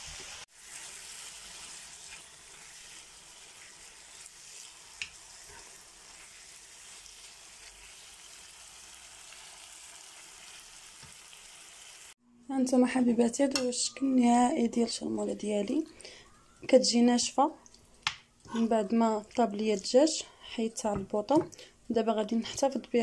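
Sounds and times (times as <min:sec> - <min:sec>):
food sizzling in a frying pan: 0:00.0 - 0:12.2
spoon stirring in a pan: 0:00.1 - 0:08.1.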